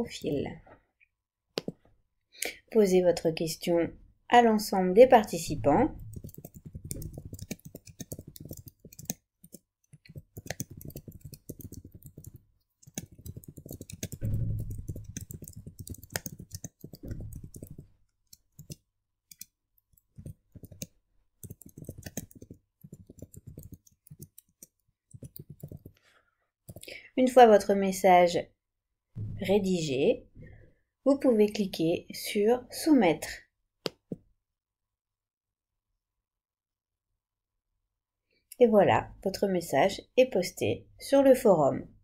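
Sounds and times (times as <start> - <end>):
keyboard typing: 5.8 - 26.0.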